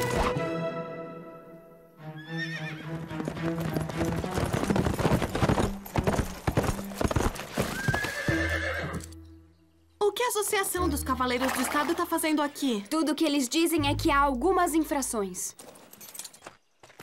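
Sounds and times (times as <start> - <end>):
background music: 0.0 - 15.6
horse whinnying: 2.2 - 2.9, 7.4 - 9.2
horse hooves galloping: 2.5 - 9.1.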